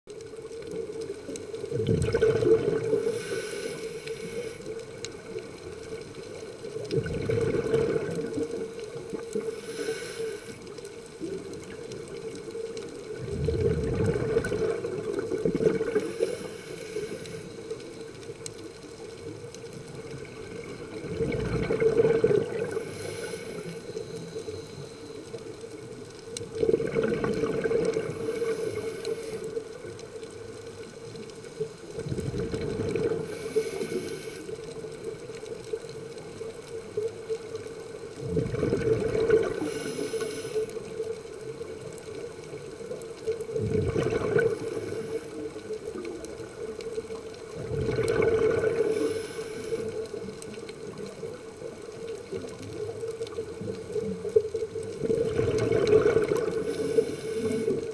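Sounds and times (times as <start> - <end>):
exhaled air bubbling underwater: 0.1 - 57.9
regulator inhalation hiss: 3.0 - 5.0, 9.4 - 10.8, 15.9 - 17.8, 22.7 - 25.3, 28.1 - 29.6, 33.2 - 34.6, 39.6 - 40.8, 44.6 - 45.5, 48.8 - 50.0, 56.6 - 57.9.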